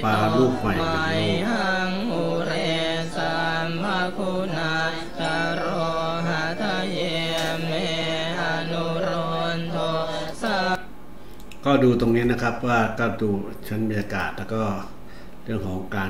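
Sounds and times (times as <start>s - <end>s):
melodic chanting voice: 0.0s - 10.9s.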